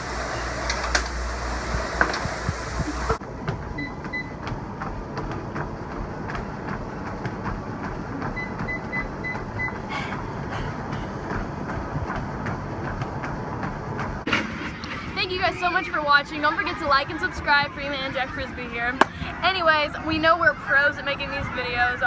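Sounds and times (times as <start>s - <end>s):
footfalls on treadmill belts: 3.1s - 14.6s.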